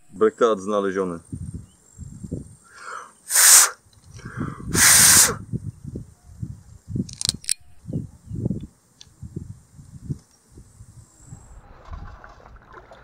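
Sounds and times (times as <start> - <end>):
breath puffs into microphone: 2.7 - 5.4.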